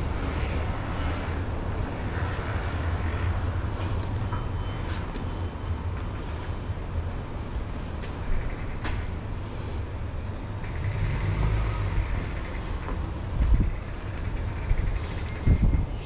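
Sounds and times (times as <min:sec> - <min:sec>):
road traffic: 0:00.0 - 0:16.0
wind rumbling on microphone: 0:11.8 - 0:16.0.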